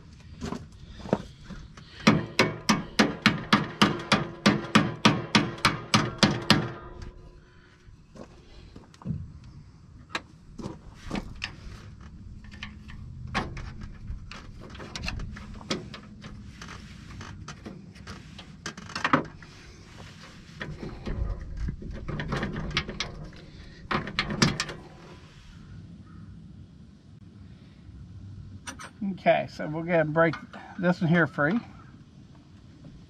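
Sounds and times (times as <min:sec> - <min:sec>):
metallic clicks and knocks: 0:01.8 - 0:07.3, 0:11.1 - 0:19.5, 0:20.6 - 0:25.1.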